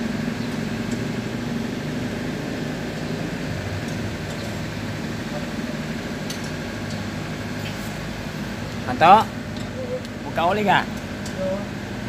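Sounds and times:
heavy engine idling: 0.0 - 12.0.

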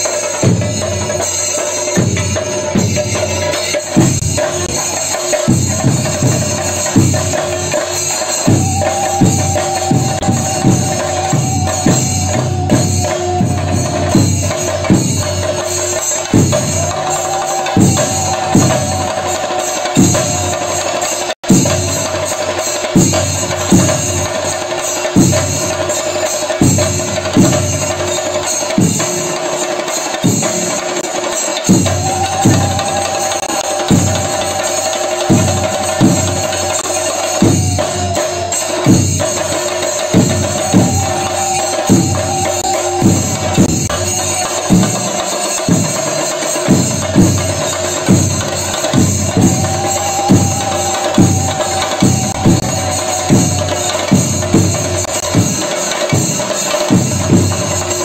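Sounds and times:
cymbals clashing: 0.0 - 58.0
drums beaten in rhythm: 0.0 - 58.0
held wavering tone: 8.4 - 15.1.

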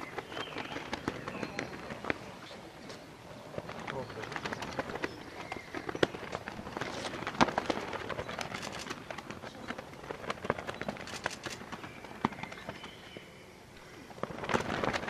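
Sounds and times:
flags flapping and snapping: 0.0 - 13.4, 14.0 - 15.0.

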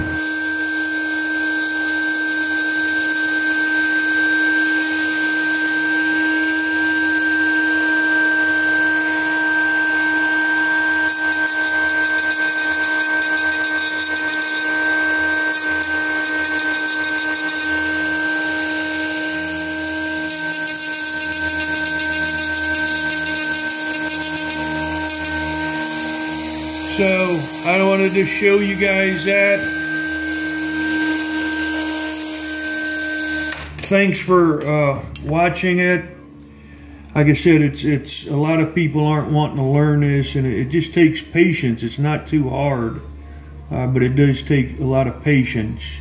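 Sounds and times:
rotary tool high whine: 0.0 - 35.3.

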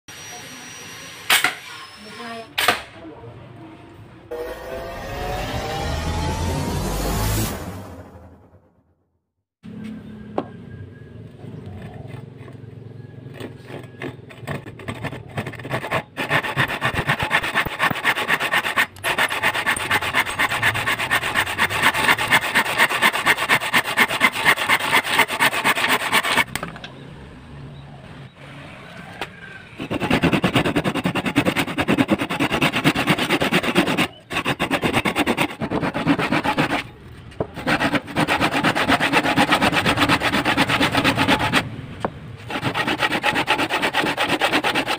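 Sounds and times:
handsaw rasping through wood: 13.3 - 26.5, 29.8 - 36.9, 37.5 - 41.7, 42.4 - 44.9.

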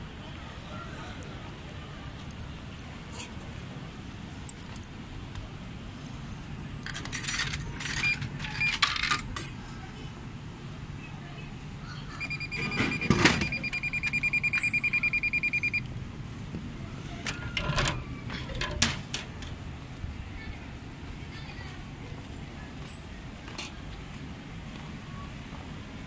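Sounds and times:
coins clattering into slot: 6.8 - 9.5
vending machine beeping: 7.8 - 8.9, 12.1 - 15.9.

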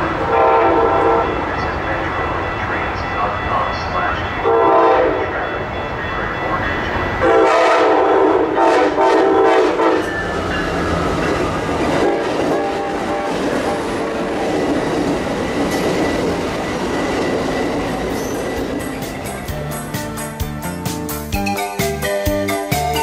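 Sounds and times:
train rumbling by: 0.0 - 23.0
train horn blasts: 0.2 - 1.4, 4.4 - 5.3, 7.2 - 10.2, 12.0 - 14.6.

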